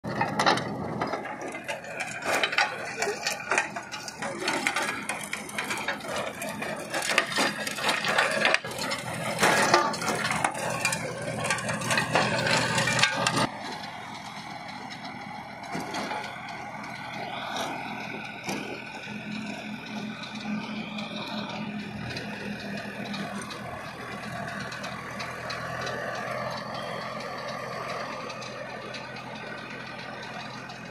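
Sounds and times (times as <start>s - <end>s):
tractor engine hum: 0.0s - 30.9s
rotavator blades crunching soil: 0.7s - 13.9s.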